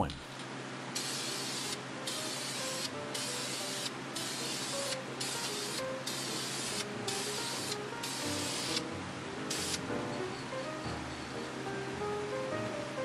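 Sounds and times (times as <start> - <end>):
aerosol can spraying: 0.9 - 10.0.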